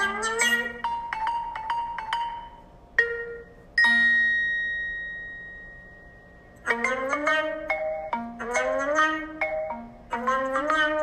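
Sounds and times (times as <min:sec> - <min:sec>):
bell-like struck notes: 0:02.2 - 0:08.1.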